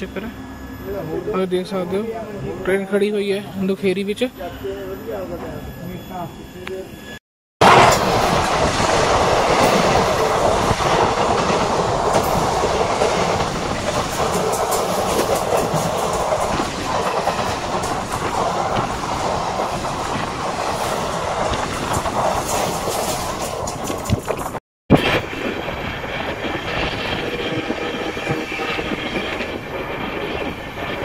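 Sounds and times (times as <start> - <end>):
train wheels clattering over joints: 9.6 - 19.6.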